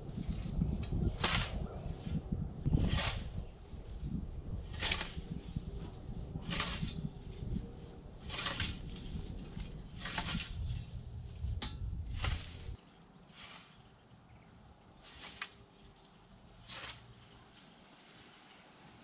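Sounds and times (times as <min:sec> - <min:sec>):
low rumble: 0:00.0 - 0:12.8
scythe swishing through grass: 0:01.1 - 0:04.0, 0:04.6 - 0:14.0, 0:15.0 - 0:19.0.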